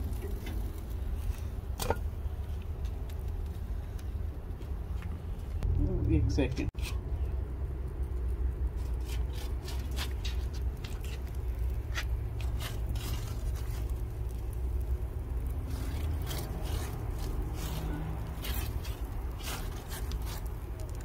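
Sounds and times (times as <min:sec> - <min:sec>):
steady low rumble: 0:00.0 - 0:21.0
cloth scraping metal grill grate: 0:06.4 - 0:07.3, 0:08.7 - 0:14.8, 0:15.4 - 0:21.0.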